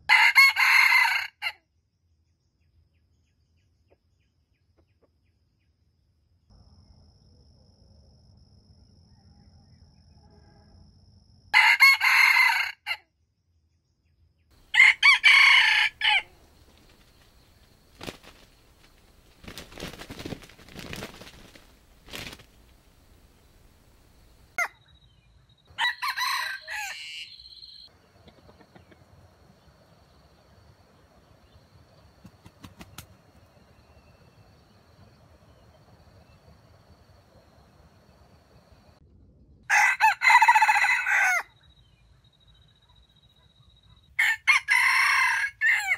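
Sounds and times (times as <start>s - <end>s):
rooster crowing: 0.1s - 1.6s, 11.5s - 13.0s, 14.6s - 16.6s, 25.7s - 27.9s, 39.7s - 41.6s, 44.2s - 45.9s.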